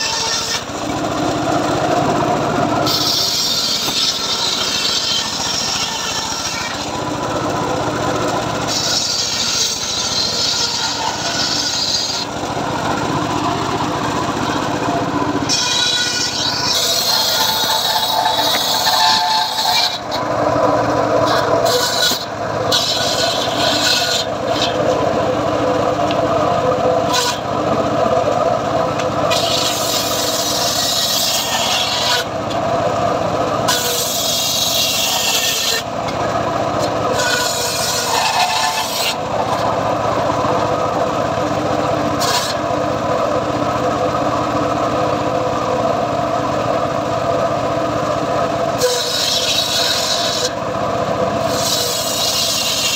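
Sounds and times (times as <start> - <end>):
circular saw running: 0.0 - 52.9
saw blade cutting wood hiss: 29.3 - 32.3.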